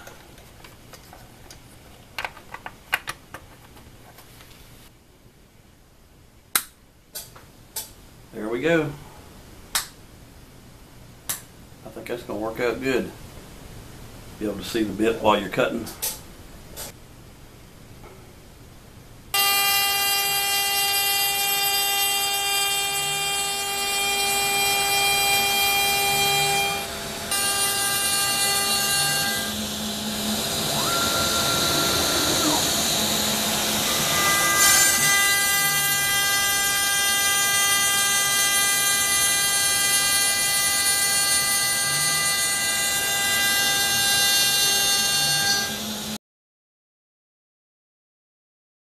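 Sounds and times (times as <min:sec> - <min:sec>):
router spindle whine cutting wood: 0:19.4 - 0:46.2.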